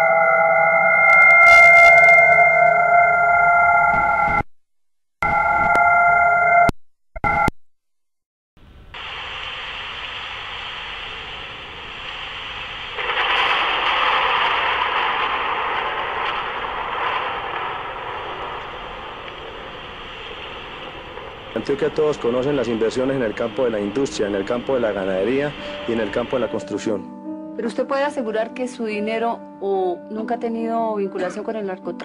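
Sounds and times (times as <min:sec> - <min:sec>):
radio-like static hiss: 0:08.6 - 0:26.7.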